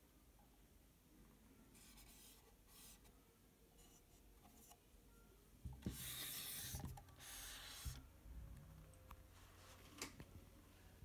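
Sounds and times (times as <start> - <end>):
rubbing and scraping handling noise: 1.7 - 3.2, 5.7 - 8.0.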